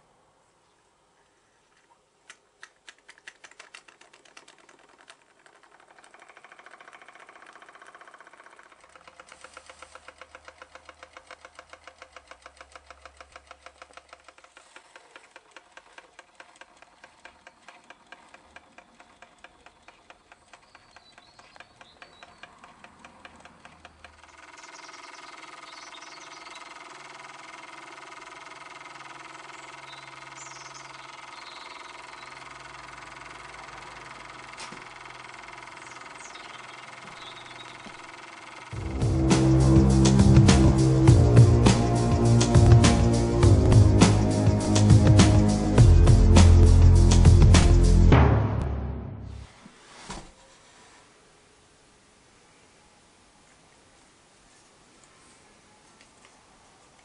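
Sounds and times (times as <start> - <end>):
model steam engine puffing: 6.8 - 19.5.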